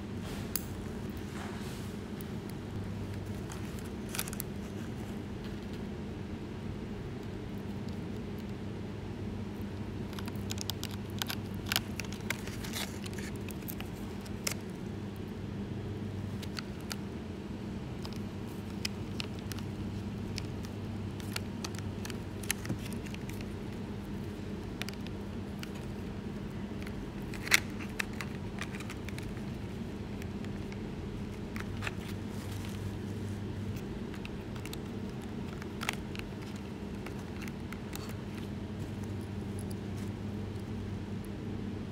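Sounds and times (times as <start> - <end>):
small plastic parts clicking: 34.1 - 40.1.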